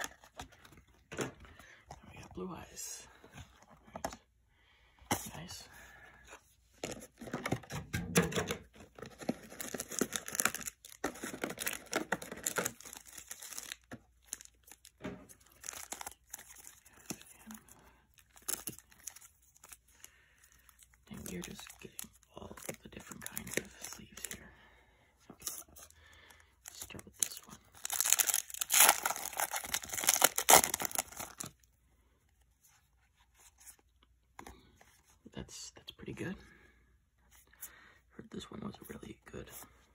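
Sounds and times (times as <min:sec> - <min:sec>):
cards rustling: 0:08.7 - 0:24.4, 0:26.6 - 0:31.6
foil wrappers crinkling: 0:09.2 - 0:14.9, 0:26.7 - 0:31.5.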